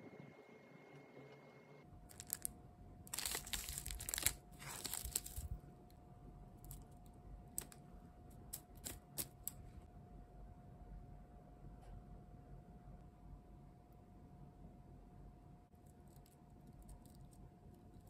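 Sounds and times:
plastic pack crinkling: 0:02.1 - 0:02.5, 0:03.1 - 0:05.6.

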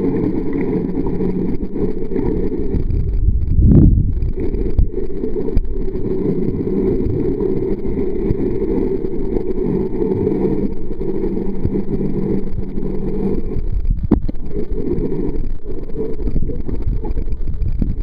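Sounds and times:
constant low hum: 0:00.0 - 0:18.0
underwater rushing water: 0:00.0 - 0:18.0
low whoosh: 0:02.7 - 0:04.9.

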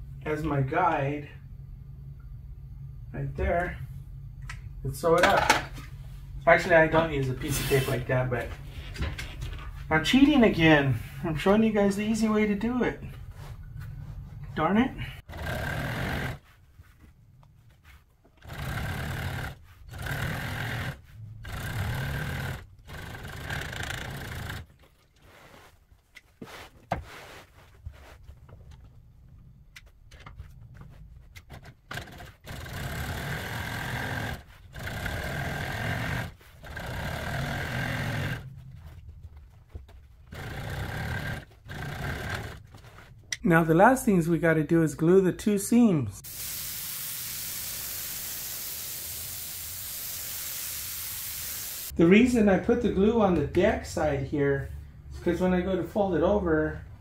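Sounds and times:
industrial sewing machine running: 0:15.3 - 0:16.4, 0:18.4 - 0:24.7, 0:31.9 - 0:38.4, 0:40.3 - 0:42.6.

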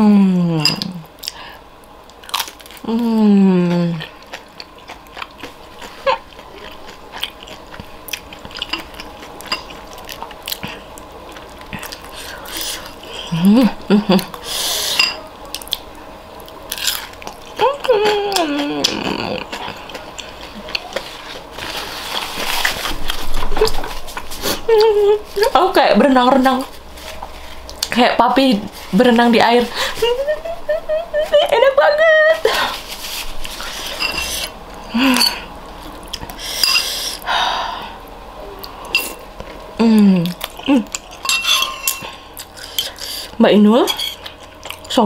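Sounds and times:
person humming: 0:00.0 - 0:01.0, 0:02.8 - 0:04.1, 0:17.6 - 0:19.8, 0:24.4 - 0:25.5, 0:29.8 - 0:32.7, 0:39.8 - 0:40.9
person chewing food: 0:02.0 - 0:02.9, 0:03.6 - 0:13.4, 0:14.2 - 0:25.5, 0:26.7 - 0:28.0, 0:32.5 - 0:37.3, 0:38.0 - 0:45.0
noisy breaths: 0:14.4 - 0:15.0, 0:36.4 - 0:38.1, 0:42.1 - 0:43.4
spoon and fork clinking on bowl: 0:41.1 - 0:42.2.

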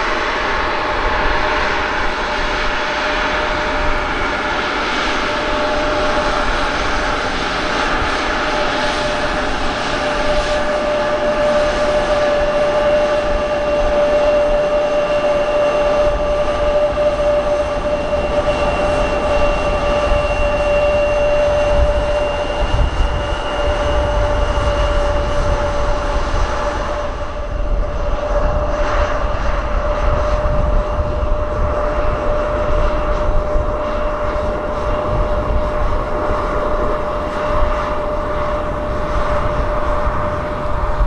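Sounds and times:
jet engines whining: 0:00.0 - 0:41.0.

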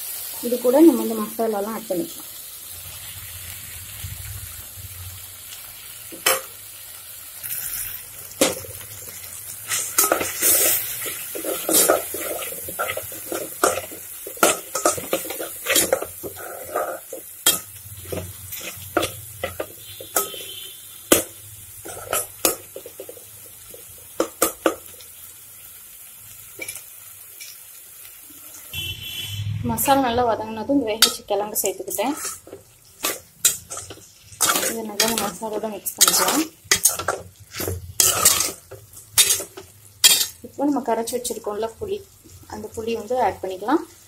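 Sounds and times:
light sizzle: 0:00.0 - 0:44.0
spoon scraping and clinking a pot: 0:09.7 - 0:23.2, 0:31.0 - 0:40.4.

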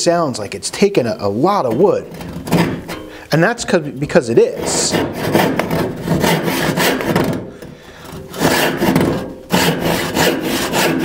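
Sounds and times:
hand saw sawing a board: 0:04.4 - 0:07.5, 0:08.1 - 0:11.0.

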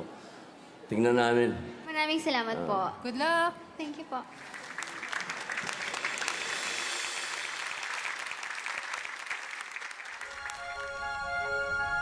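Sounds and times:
audience applauding: 0:04.3 - 0:11.3.

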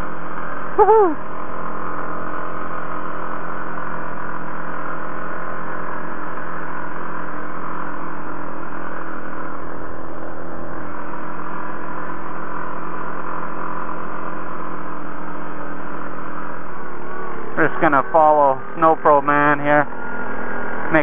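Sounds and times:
atv engine drone: 0:00.0 - 0:21.0.

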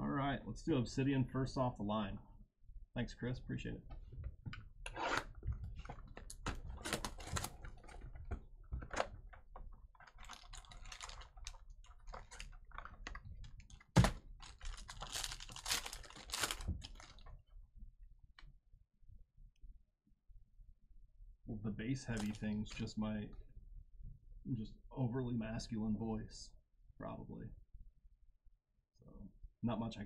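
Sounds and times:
cards clicking and rustling: 0:05.0 - 0:09.1.

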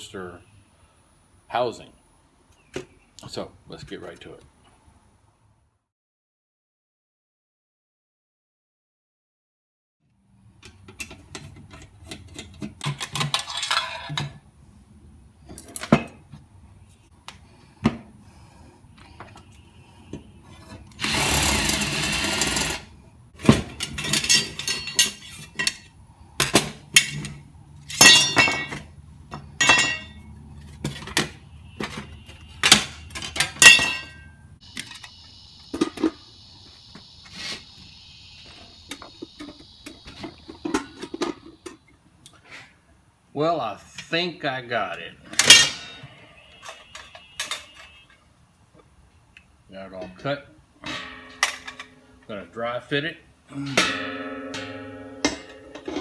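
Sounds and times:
metal parts and tools clanking: 0:10.6 - 0:14.4, 0:15.4 - 0:16.4, 0:20.4 - 0:36.2, 0:38.4 - 0:41.9, 0:45.2 - 0:48.3, 0:49.9 - 0:52.9, 0:53.6 - 0:56.0
cordless drill drilling metal: 0:21.0 - 0:22.8.

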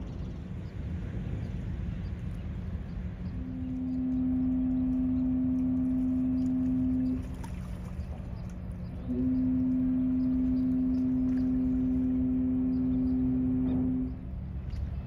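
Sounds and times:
low rumble: 0:00.0 - 0:15.0
ship's horn blast: 0:03.2 - 0:15.0.

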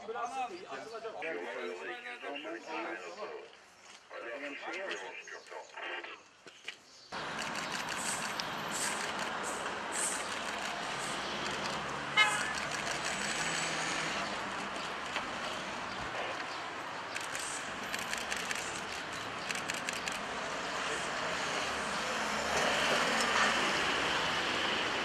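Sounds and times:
city street traffic: 0:00.0 - 0:25.0
car horn toot: 0:12.2 - 0:12.6.

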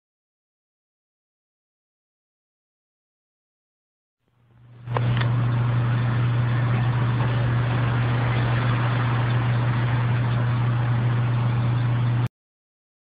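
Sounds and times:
handheld vacuum cleaner running: 0:04.9 - 0:12.3.

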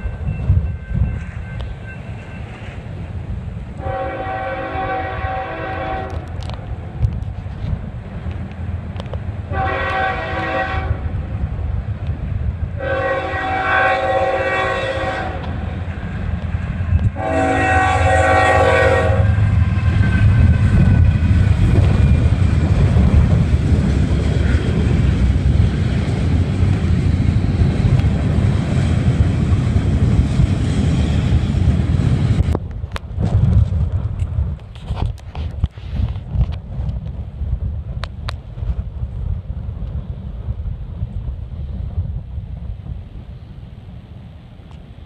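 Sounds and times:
train wheels rumbling on rails: 0:00.0 - 0:45.0
locomotive air horn blasts: 0:03.8 - 0:06.4, 0:09.5 - 0:11.2, 0:12.8 - 0:15.6, 0:17.0 - 0:21.0.

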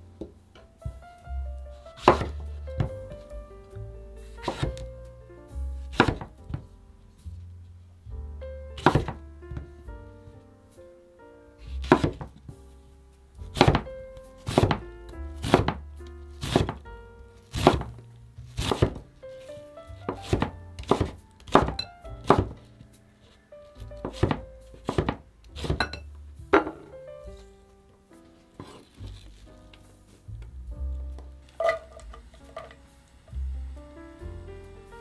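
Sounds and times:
background music: 0:00.0 - 0:35.0
knife chopping on wooden board: 0:02.0 - 0:02.9, 0:04.4 - 0:04.8, 0:05.9 - 0:06.6, 0:08.8 - 0:09.2, 0:11.8 - 0:12.4, 0:13.5 - 0:14.8, 0:15.4 - 0:15.8, 0:16.4 - 0:16.8, 0:17.5 - 0:18.0, 0:18.6 - 0:19.0, 0:20.1 - 0:22.6, 0:23.8 - 0:26.0.

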